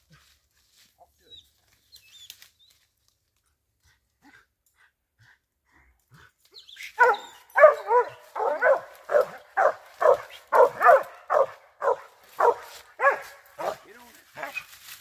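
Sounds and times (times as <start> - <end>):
dog barking: 7.0 - 14.7.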